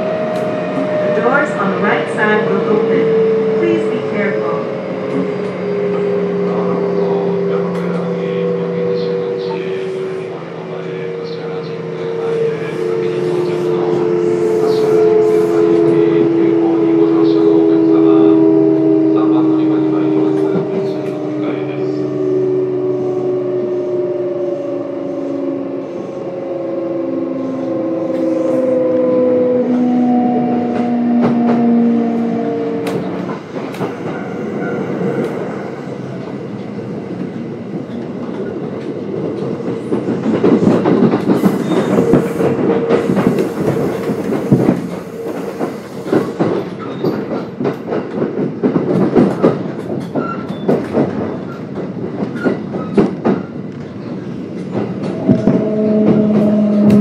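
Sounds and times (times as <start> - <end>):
train wheels clattering over rail joints: 37.8 - 57.0.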